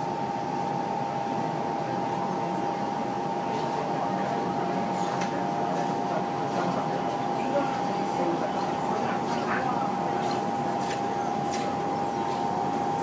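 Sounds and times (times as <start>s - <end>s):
constant train whine: 0.0s - 13.0s
train running noise: 0.0s - 13.0s.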